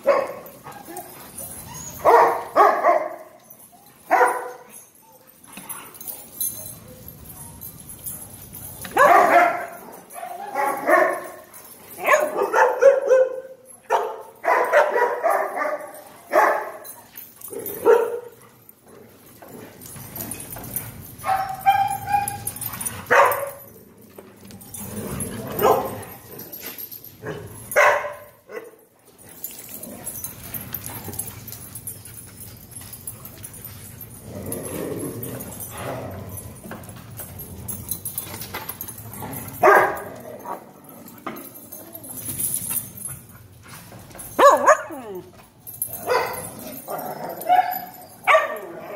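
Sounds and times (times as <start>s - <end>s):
dogs barking: 0.0s - 1.2s, 2.0s - 3.4s, 4.1s - 4.8s, 8.9s - 16.9s, 17.5s - 18.4s, 21.2s - 23.7s, 25.5s - 26.2s, 27.2s - 28.8s, 39.5s - 40.6s, 44.3s - 45.2s, 46.0s - 48.9s.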